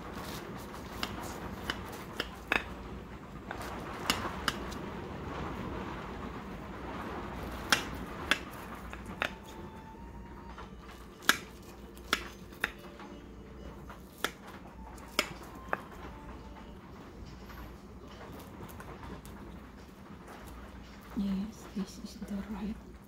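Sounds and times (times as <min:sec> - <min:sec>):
steady low hum: 0:00.0 - 0:23.0
knife slicing pie: 0:00.1 - 0:02.8, 0:11.0 - 0:12.9.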